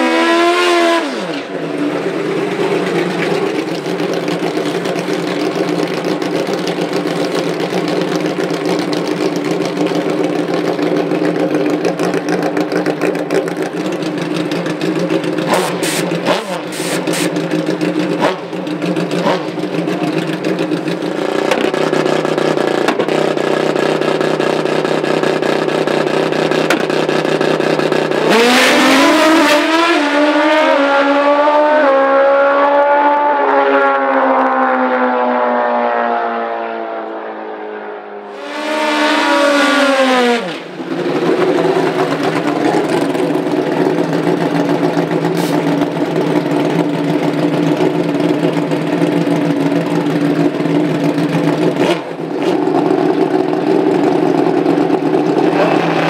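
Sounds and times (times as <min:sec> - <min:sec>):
engine revving hard: 0:00.0 - 0:01.5, 0:15.5 - 0:17.3, 0:28.2 - 0:34.1, 0:38.3 - 0:40.8, 0:55.4 - 0:56.0
motorcycles accelerating through gears: 0:00.0 - 0:56.0
motorcycle engines idling: 0:01.4 - 0:29.9, 0:38.3 - 0:56.0.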